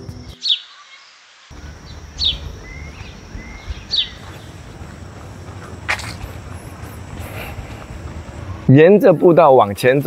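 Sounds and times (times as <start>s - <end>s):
bird chirping: 0.0s - 4.8s.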